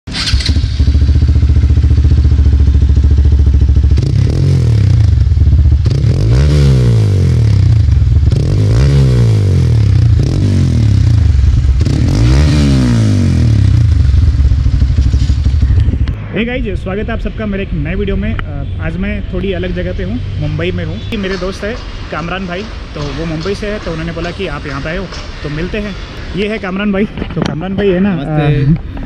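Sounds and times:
motorcycle engine idling: 0:00.1 - 0:06.0, 0:13.3 - 0:16.0.

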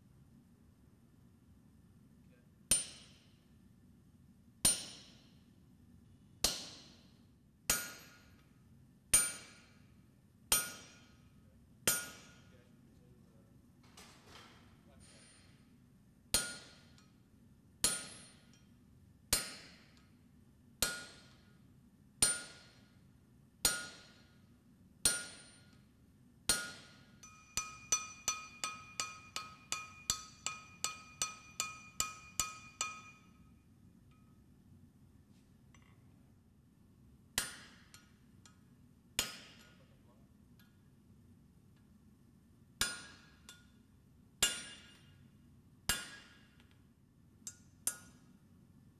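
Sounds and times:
hammer striking steel on anvil: 0:02.7 - 0:03.5, 0:04.6 - 0:05.4, 0:06.4 - 0:12.6, 0:15.0 - 0:15.7, 0:16.3 - 0:20.2, 0:20.8 - 0:21.6, 0:22.2 - 0:23.0, 0:23.6 - 0:25.9, 0:26.5 - 0:34.5, 0:37.4 - 0:40.0, 0:42.8 - 0:45.3, 0:45.9 - 0:46.9, 0:47.5 - 0:48.4.

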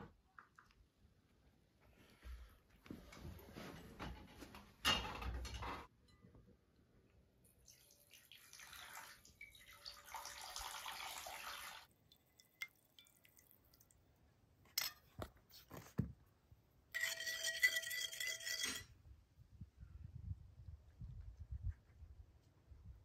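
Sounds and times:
water pouring into a bowl: 0:07.6 - 0:14.0
spoon stirring in a ceramic bowl: 0:16.9 - 0:18.8.

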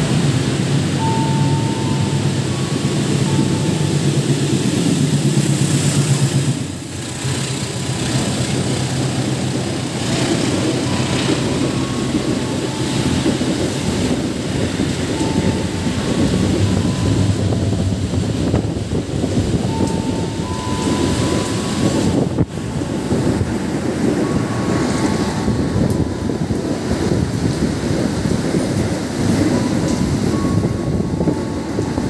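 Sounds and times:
heavy rain: 0:00.0 - 0:32.0
locomotive engine droning: 0:00.0 - 0:32.0
train wagons rumbling and clattering: 0:00.0 - 0:32.0.

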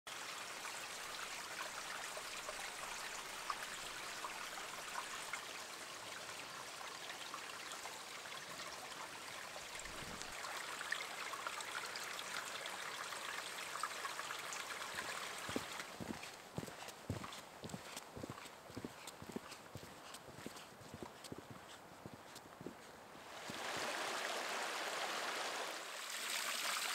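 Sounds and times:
small stream running: 0:00.1 - 0:26.9.

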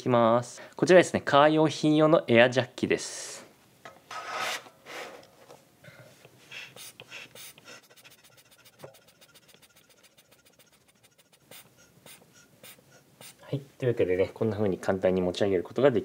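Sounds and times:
short puffs of air: 0:06.4 - 0:13.5.

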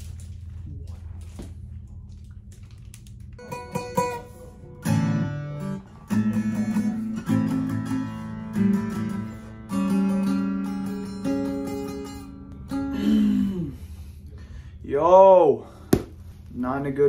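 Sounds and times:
acoustic guitar chords strummed: 0:03.4 - 0:13.7.

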